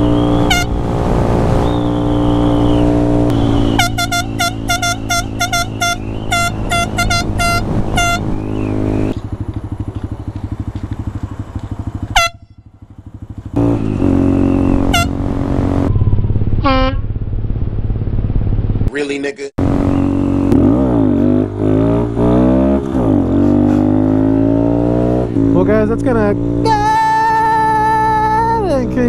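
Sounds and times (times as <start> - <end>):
air horn honks: 0.4 - 0.8, 3.3 - 8.4, 12.1 - 12.8, 14.8 - 15.2, 16.6 - 17.0
small motorcycle engine running: 9.0 - 18.4.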